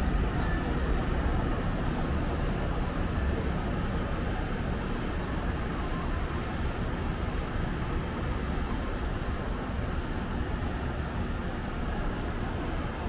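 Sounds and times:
distant city traffic rumble: 0.0 - 13.0.

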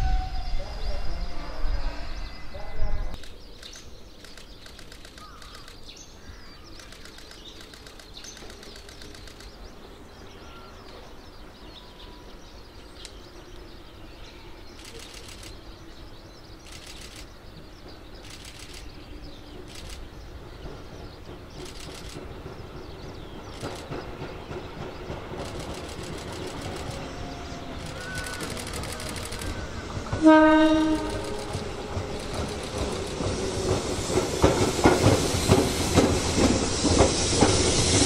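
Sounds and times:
approaching train rumble: 0.0 - 38.0
birds chirping: 0.3 - 38.0
high bird trills: 2.0 - 9.6, 14.1 - 15.8, 18.2 - 20.2, 25.4 - 34.3.

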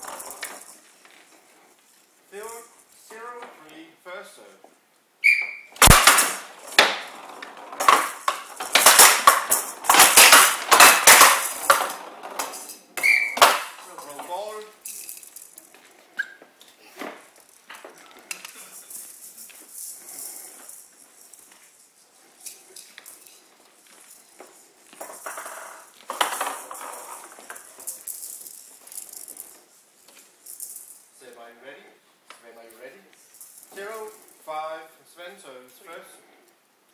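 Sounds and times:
bead-filled ball rattling: 0.0 - 3.0, 5.8 - 16.2, 17.2 - 31.3, 32.7 - 34.5
sharp knocks off bats and walls: 5.4 - 14.4.

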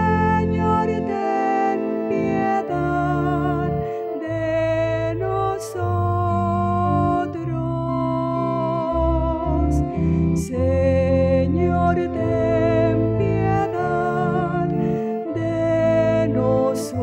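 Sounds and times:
person singing long notes: 0.0 - 17.0
sustained keyboard chords: 0.0 - 17.0.

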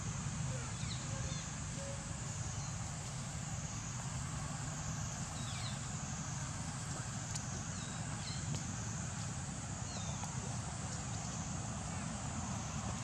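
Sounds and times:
constant high-pitched hiss: 0.0 - 13.0.

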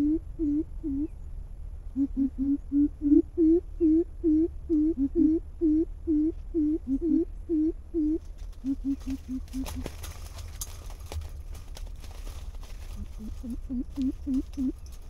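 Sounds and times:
deep hollow bird hoots: 0.0 - 1.3, 1.9 - 10.2, 12.8 - 15.0
lower bird voice hooting: 0.0 - 10.0, 12.9 - 15.0.

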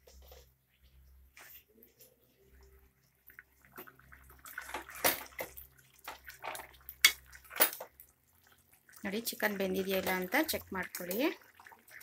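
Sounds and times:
thick gravy sloshing: 3.2 - 12.0.

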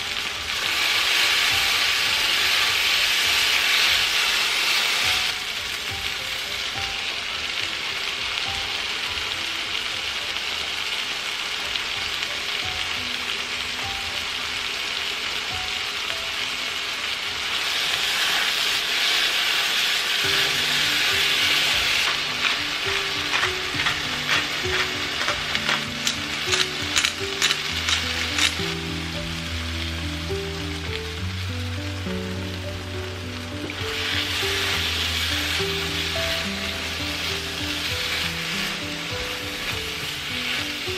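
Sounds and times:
food sizzling in a frying pan: 0.0 - 40.9
utensil scraping a pan: 20.4 - 28.7.

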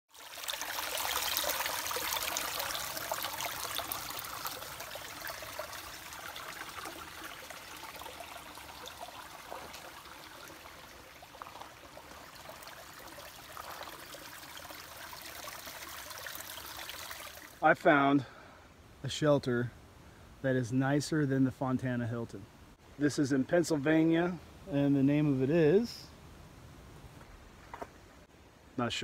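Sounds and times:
brook running over rocks: 0.1 - 17.7.

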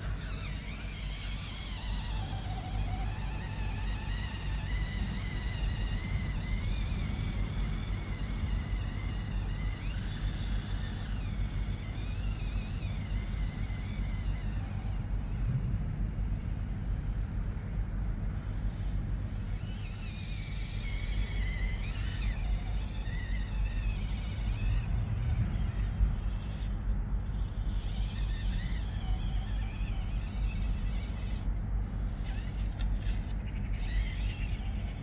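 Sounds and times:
small electric motor whining: 0.0 - 35.0
steady low rumble: 14.7 - 19.4.

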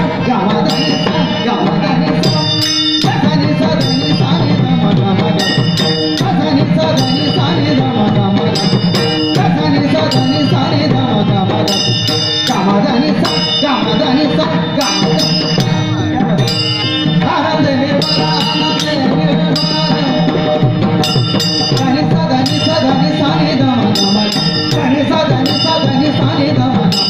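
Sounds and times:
devotional singing: 0.0 - 27.0
hand drum: 0.0 - 27.0
small hand cymbals clashing: 0.7 - 4.6, 5.2 - 7.8, 8.5 - 11.0, 11.6 - 14.1, 14.8 - 17.4, 18.0 - 27.0.

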